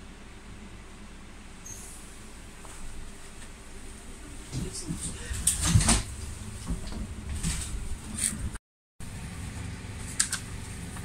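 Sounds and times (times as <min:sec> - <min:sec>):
sharp click: 0:10.1 - 0:10.5.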